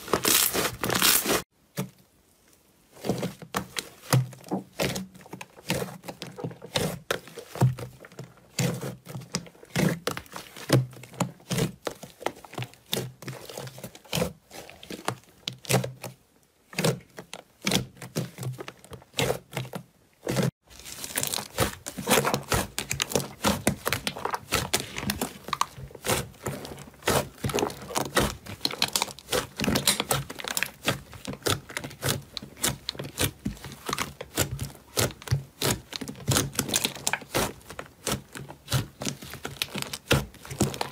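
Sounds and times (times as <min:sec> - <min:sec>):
slime squelching and clicking: 0:21.0 - 0:40.9.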